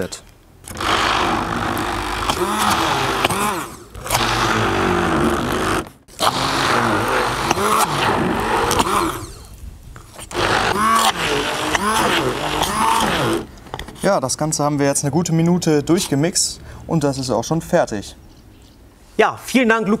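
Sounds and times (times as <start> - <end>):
stick blender running: 0.6 - 9.6, 10.2 - 13.5.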